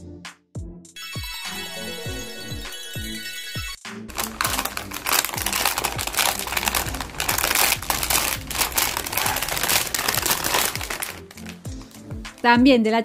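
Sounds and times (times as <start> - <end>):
background music with beat: 0.0 - 4.1, 11.5 - 12.9
plastic bag crinkling: 4.1 - 12.5.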